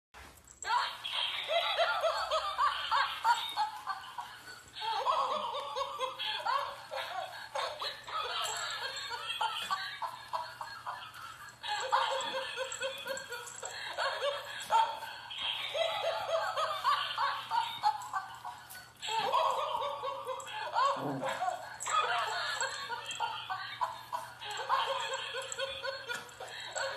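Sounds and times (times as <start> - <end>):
laughter: 0.7 - 26.9.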